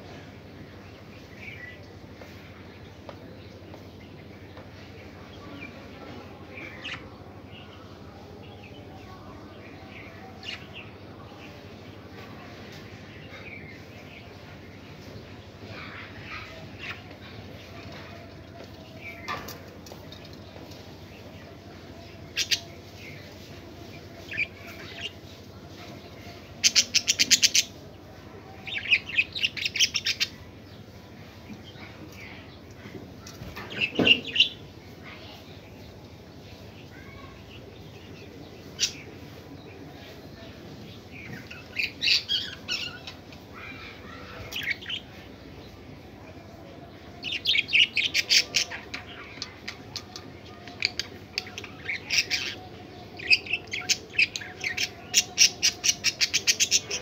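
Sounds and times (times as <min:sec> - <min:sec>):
parrots chirping and chattering: 0:12.2 - 0:39.4, 0:40.0 - 0:45.8, 0:47.1 - 0:57.0.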